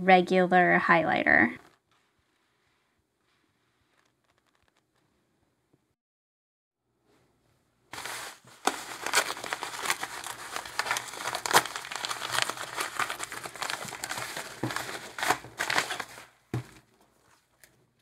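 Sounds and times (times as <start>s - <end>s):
paper envelope crinkling: 3.8s - 5.0s, 7.9s - 16.9s.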